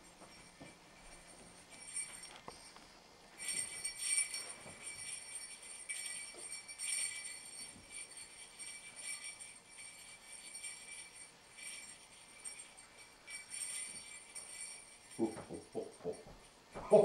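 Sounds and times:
sleigh bells jingling: 0.0 - 17.0.

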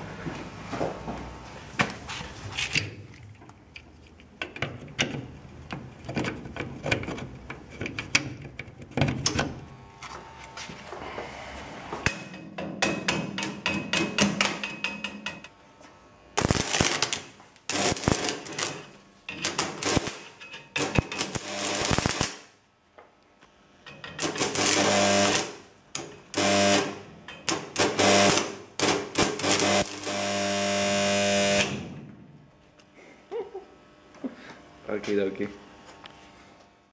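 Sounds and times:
welding buzz: 9.4 - 11.2, 15.4 - 22.6, 24.2 - 32.1
welding arc crackling: 16.3 - 22.6, 24.2 - 31.8.

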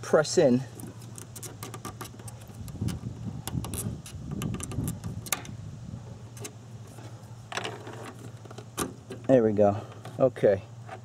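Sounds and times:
plastic clicks and rubbing: 0.8 - 5.5.

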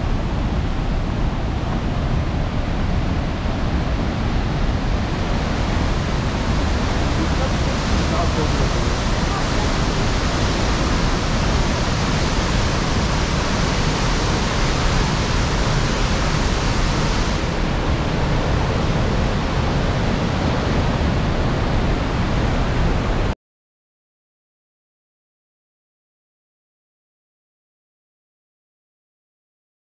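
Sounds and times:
waterfall roaring over rocks: 0.0 - 23.3.

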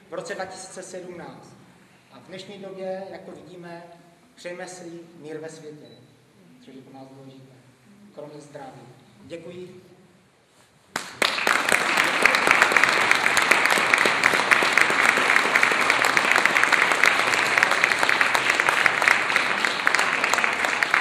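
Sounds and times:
audience applauding: 10.9 - 21.0.

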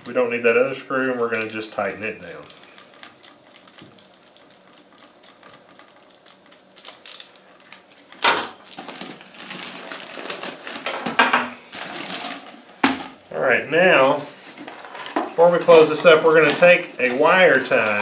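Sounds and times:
clattering of outlet and wires: 1.3 - 2.6, 6.5 - 9.2, 14.5 - 18.0.

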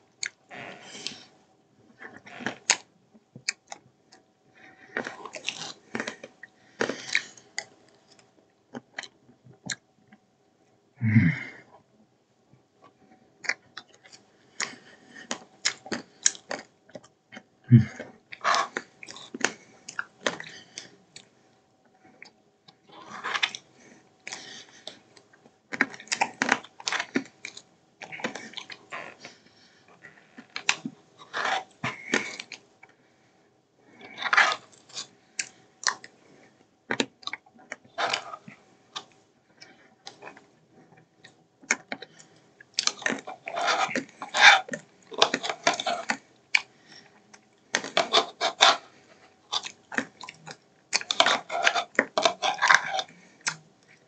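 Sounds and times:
spoon scraping a bowl: 43.2 - 46.1, 47.9 - 48.8, 51.0 - 53.1
chewing and mouth sounds: 49.5 - 54.0.

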